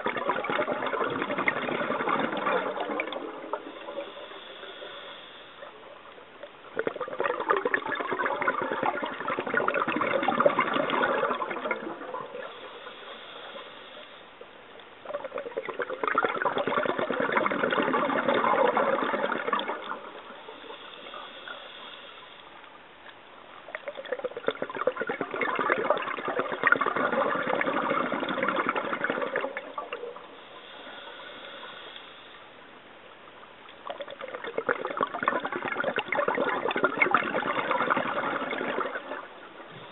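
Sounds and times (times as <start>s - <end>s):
exhaled bubbles rushing: 0.0s - 4.9s, 6.6s - 13.1s, 15.0s - 21.6s, 23.7s - 30.4s, 33.8s - 39.9s
faint high hiss: 0.0s - 39.9s.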